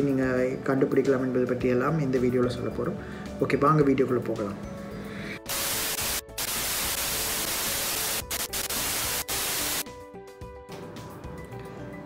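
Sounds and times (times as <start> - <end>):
television static hiss: 5.5 - 9.8.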